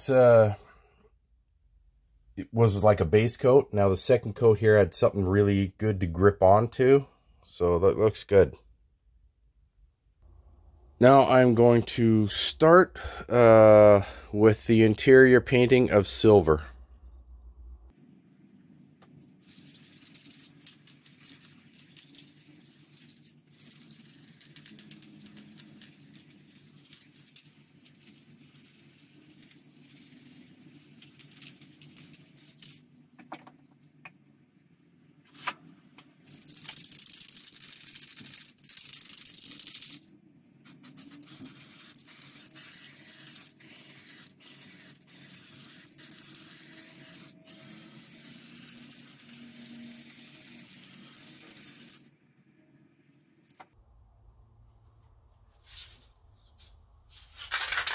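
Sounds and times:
spray paint hissing: 0:19.4 - 0:32.8, 0:36.2 - 0:52.1.

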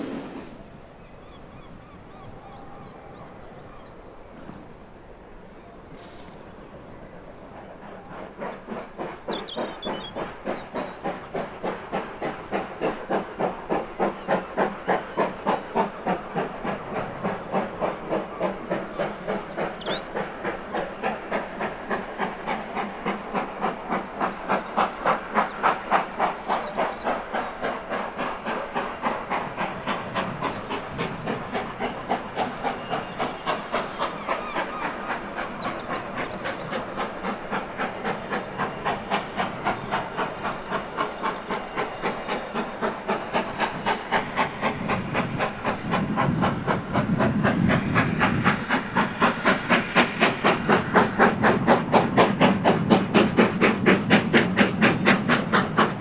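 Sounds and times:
low rumble of train: 0:00.0 - 0:56.0
steam locomotive exhaust beating: 0:00.0 - 0:56.0.

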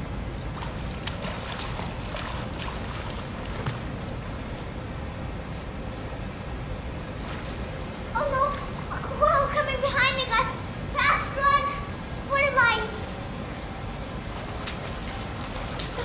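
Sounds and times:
pool water splashing and lapping: 0:00.0 - 0:09.9, 0:13.4 - 0:16.0
steady low rumble: 0:00.0 - 0:16.0.

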